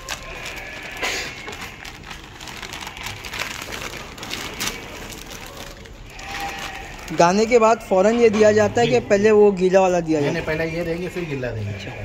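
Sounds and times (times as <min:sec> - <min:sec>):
bag rustling and crackling: 0:00.0 - 0:07.6.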